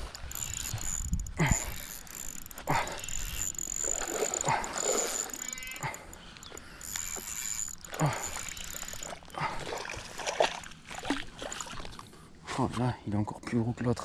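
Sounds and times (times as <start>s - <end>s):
fishing reel clicking: 0.0s - 9.5s.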